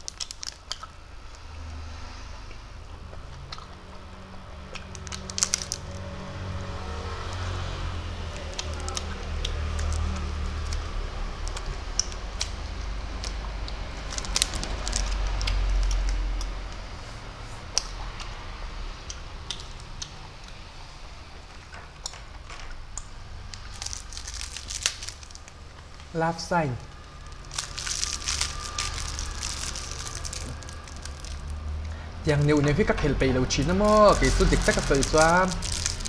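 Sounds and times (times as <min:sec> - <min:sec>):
plastic wrapper crinkling: 0:00.0 - 0:00.9, 0:04.9 - 0:06.0, 0:08.3 - 0:12.5, 0:14.0 - 0:16.2, 0:23.5 - 0:26.0, 0:26.9 - 0:36.0
sucking and wet mouth clicks: 0:00.0 - 0:01.5, 0:02.5 - 0:03.8, 0:11.5 - 0:16.8.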